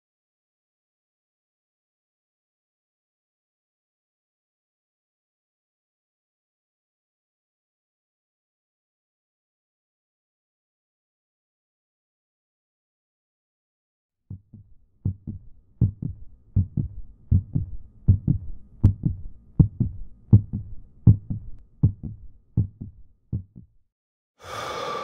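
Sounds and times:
heartbeat thumping: 14.3s - 23.8s.

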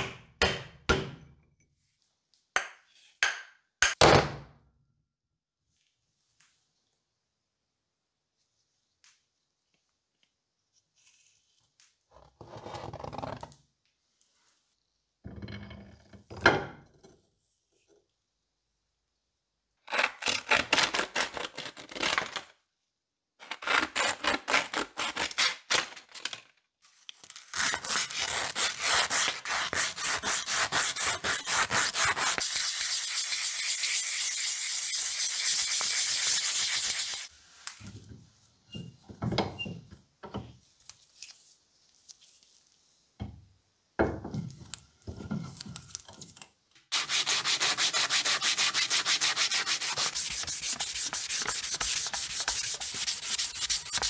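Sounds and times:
sandpaper scraping metal: 27.6s - 37.3s, 46.9s - 54.0s.

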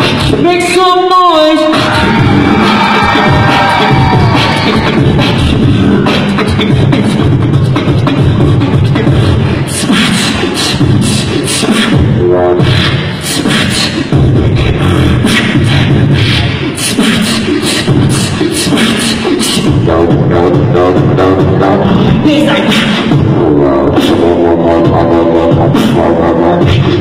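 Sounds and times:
person beatboxing: 0.0s - 27.0s
pitched vocal lines: 0.0s - 27.0s.

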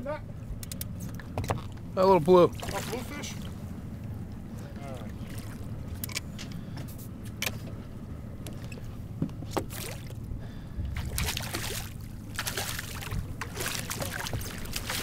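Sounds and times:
low rumble: 0.4s - 15.0s
fish splashing in water: 2.5s - 3.6s, 5.2s - 5.7s, 9.6s - 15.0s.

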